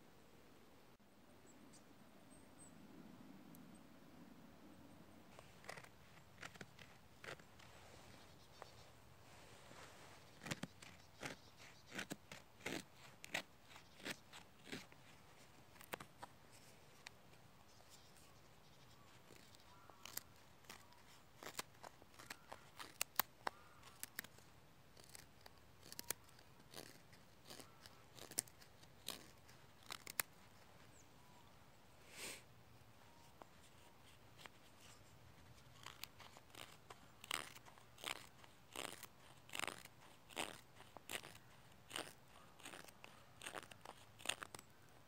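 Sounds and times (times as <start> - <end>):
knife scraping wood: 5.4 - 8.8, 10.2 - 17.1, 17.8 - 30.5, 33.6 - 44.7.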